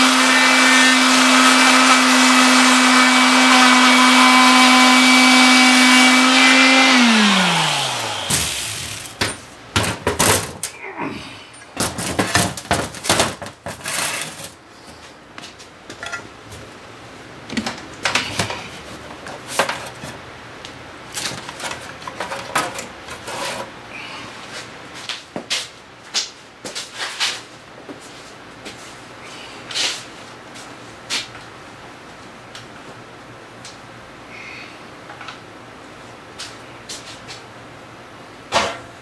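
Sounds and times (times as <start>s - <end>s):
power tool whining: 0.0s - 9.3s
metal parts clattering on workbench: 11.6s - 14.6s.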